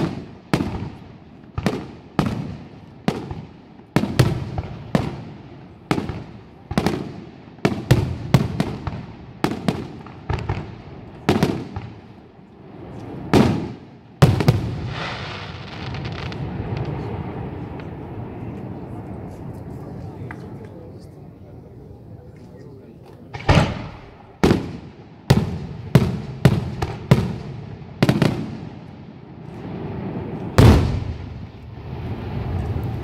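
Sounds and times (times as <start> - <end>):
firework shells bursting: 23.3 - 27.4.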